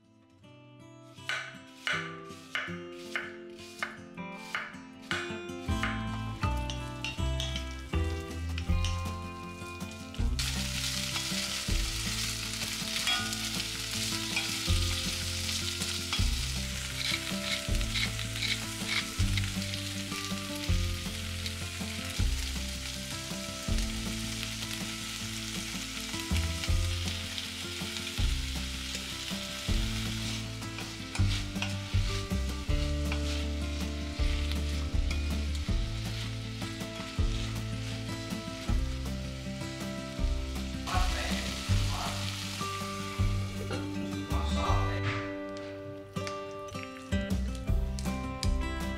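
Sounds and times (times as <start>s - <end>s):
vegetables sizzling in oil: 1.3s - 44.0s
wooden spoon scraping and stirring: 16.8s - 19.2s, 30.0s - 38.2s.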